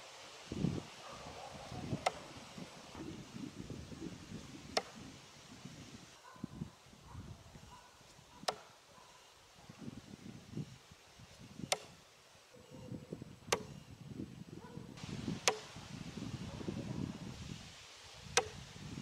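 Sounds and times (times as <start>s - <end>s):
tomahawk striking wooden log: 8.4s - 8.7s, 11.6s - 12.0s, 13.5s - 13.8s, 15.4s - 15.7s, 18.4s - 18.6s.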